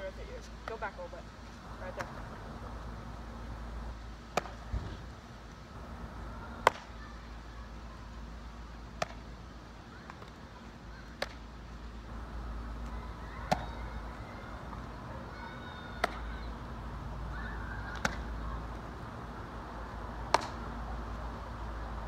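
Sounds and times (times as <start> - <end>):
baseball smacking into gloves: 4.3 - 5.1, 6.6 - 6.9, 9.0 - 9.2, 11.2 - 11.4, 13.5 - 13.7, 16.0 - 16.2, 17.9 - 18.3, 20.3 - 20.6.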